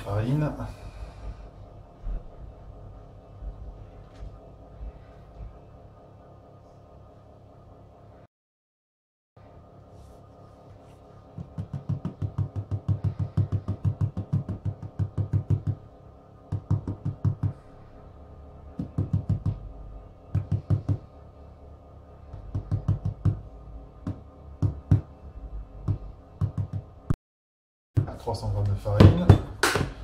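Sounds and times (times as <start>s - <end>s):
dull knocks of tapping: 11.4s - 15.9s, 16.5s - 17.6s, 18.8s - 19.6s, 20.3s - 21.1s, 22.3s - 23.4s, 24.0s - 25.1s, 25.8s - 26.9s.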